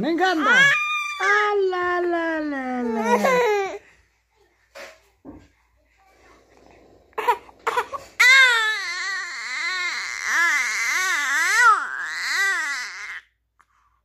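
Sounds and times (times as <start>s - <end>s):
infant crying: 2.9s - 3.8s, 7.2s - 13.3s.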